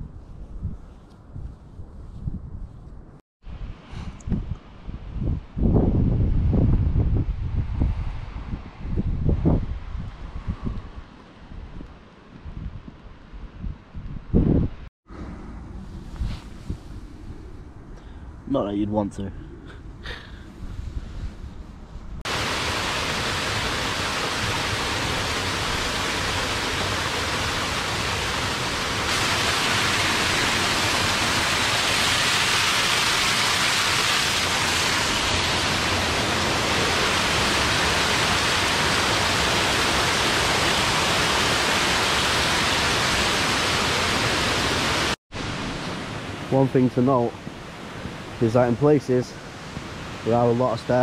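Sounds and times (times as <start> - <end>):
water cascading over rocks: 22.3 - 46.2.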